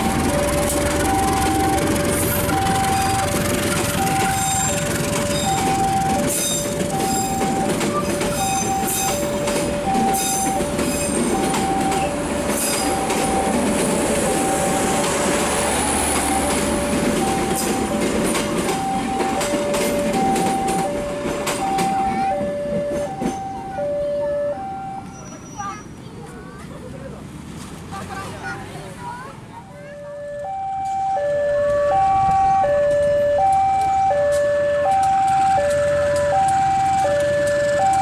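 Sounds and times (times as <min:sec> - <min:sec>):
high wheel squeal: 0:00.0 - 0:21.0, 0:24.6 - 0:26.0
train wheels clattering over rail joints: 0:00.0 - 0:23.6
two-tone crossing alarm: 0:00.0 - 0:25.4, 0:29.9 - 0:38.0.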